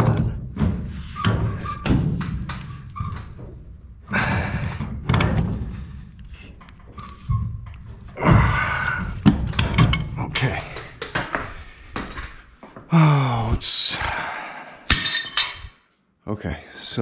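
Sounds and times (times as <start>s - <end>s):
pipe wrench clunks and knocks: 4.5s - 8.0s, 9.1s - 12.2s.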